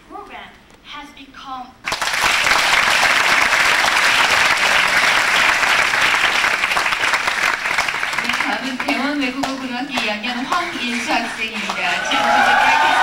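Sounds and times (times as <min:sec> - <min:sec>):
audience applauding: 0:01.8 - 0:13.0.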